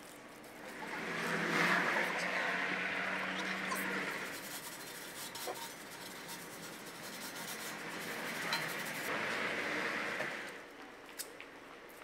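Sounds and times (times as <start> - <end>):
cloth rubbing on metal: 0.2 - 9.1.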